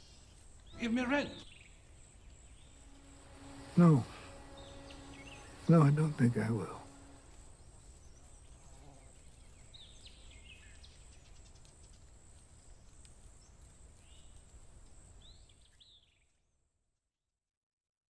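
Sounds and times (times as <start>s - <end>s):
low rumble and hiss: 0.0s - 15.3s
bird chirps: 0.6s - 12.0s.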